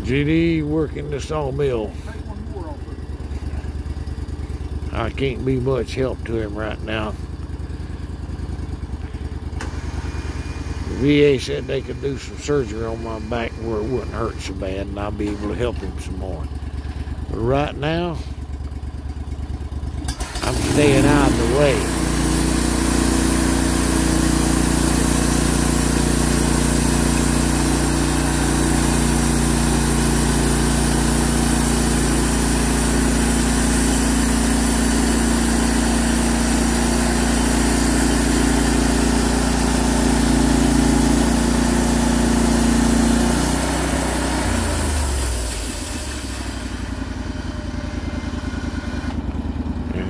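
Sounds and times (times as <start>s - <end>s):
gas engine running: 0.0s - 50.0s
band saw cutting log: 9.2s - 18.4s, 20.0s - 49.2s.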